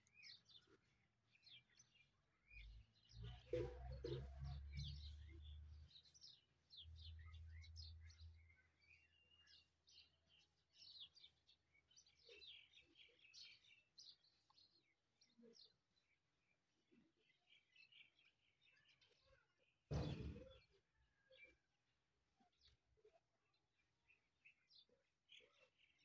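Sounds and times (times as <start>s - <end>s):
faint high bird chirps: 0.0s - 26.0s
brief knock: 19.9s - 20.6s.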